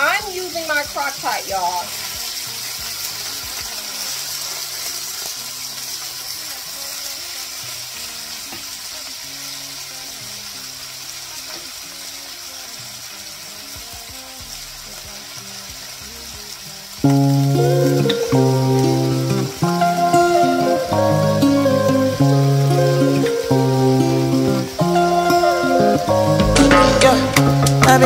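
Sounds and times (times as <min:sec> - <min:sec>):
beef sizzling in a skillet: 0:00.0 - 0:28.0
loud music: 0:17.1 - 0:28.0.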